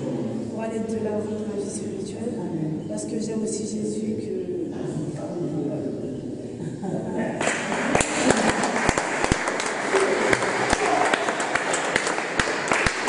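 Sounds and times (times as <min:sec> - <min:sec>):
people clapping: 0:07.4 - 0:13.0.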